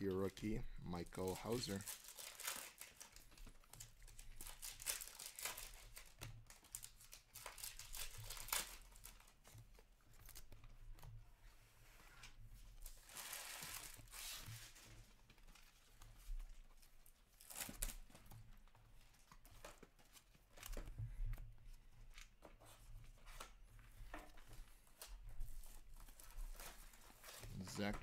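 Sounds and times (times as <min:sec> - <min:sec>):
trading cards rustling and clicking: 0:00.1 - 0:11.0, 0:12.2 - 0:21.0, 0:21.7 - 0:28.0
tearing crinkling rustle: 0:01.0 - 0:10.5, 0:12.2 - 0:18.5, 0:24.4 - 0:28.0.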